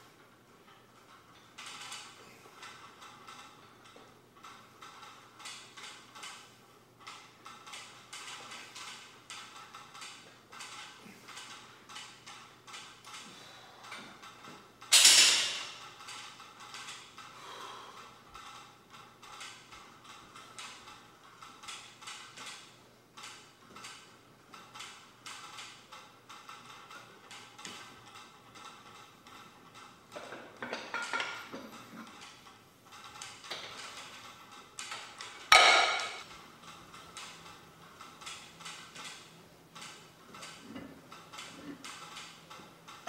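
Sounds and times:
barbell plates clanking on floor: 0:14.9 - 0:15.8, 0:35.5 - 0:36.2.

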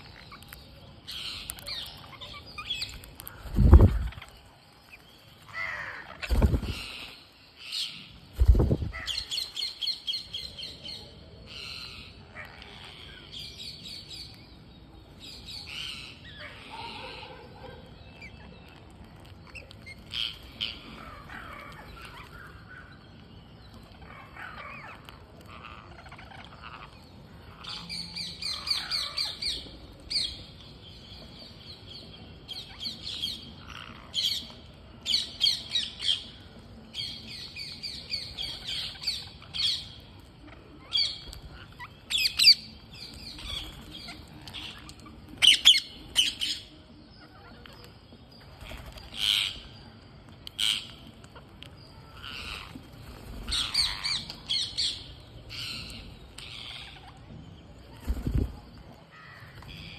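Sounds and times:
parakeets squawking: 0:12.3 - 0:13.3, 0:53.5 - 0:57.2.

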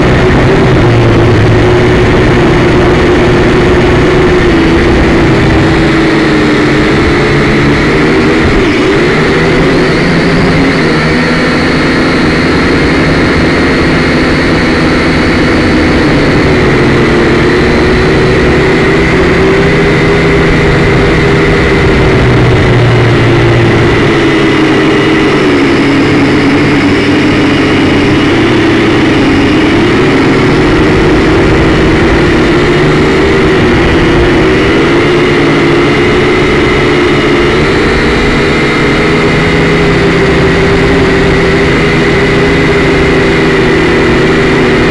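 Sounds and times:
drone motors whining: 0:00.0 - 0:44.9.

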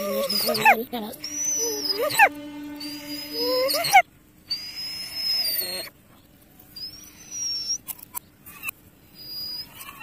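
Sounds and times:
dog whining: 0:00.0 - 0:05.9, 0:08.5 - 0:10.0.

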